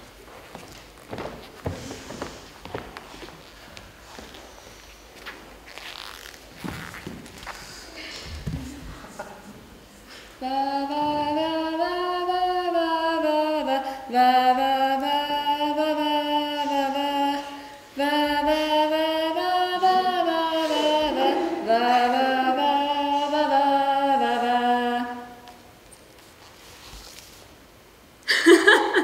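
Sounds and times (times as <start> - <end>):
woman singing unaccompanied: 10.4 - 25.6.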